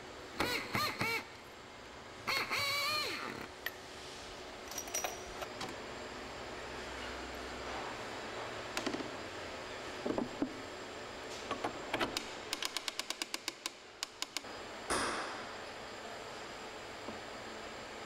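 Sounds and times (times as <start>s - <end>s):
winch ratchet clicks: 12.2s - 14.4s.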